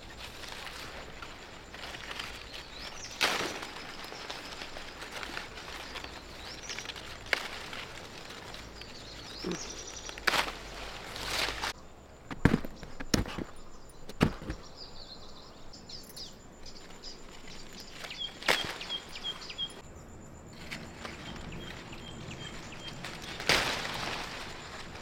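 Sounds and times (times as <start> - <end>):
leaves rustling: 0.0 - 11.9, 16.5 - 25.0
bird chirping: 8.2 - 10.9, 12.7 - 20.2, 21.1 - 23.4
fruit snapping off branch: 10.1 - 10.6.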